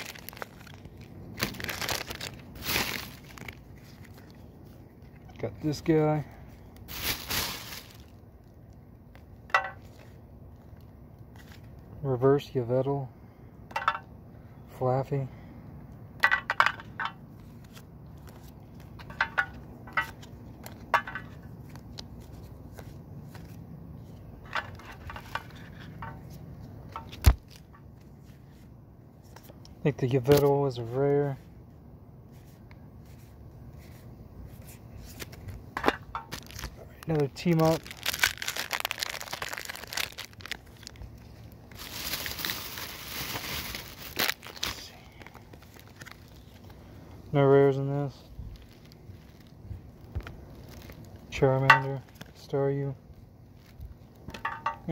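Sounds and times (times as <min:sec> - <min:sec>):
card wrappers crinkling: 0:00.0 - 0:11.9, 0:32.4 - 0:47.0, 0:48.0 - 0:54.9.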